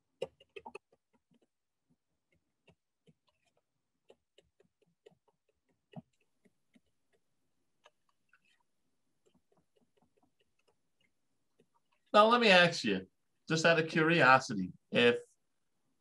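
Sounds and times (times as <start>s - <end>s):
faint clicks and knocks: 0.0s - 12.1s.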